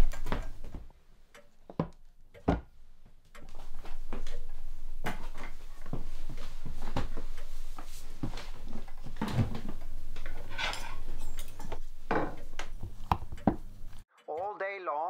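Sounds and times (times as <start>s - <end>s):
crockery knocking and clinking: 9.0s - 14.0s.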